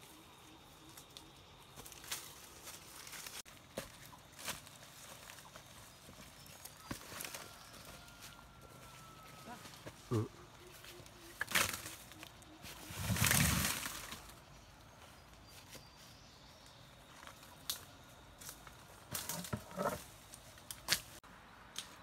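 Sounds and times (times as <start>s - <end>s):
rustle of leaf litter: 10.7s - 14.6s.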